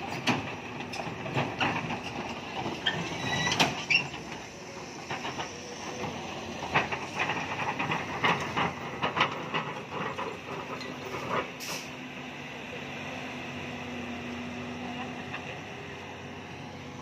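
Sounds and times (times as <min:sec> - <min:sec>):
crawler tracks clanking: 0:00.0 - 0:12.0
diesel engine running: 0:00.0 - 0:17.0.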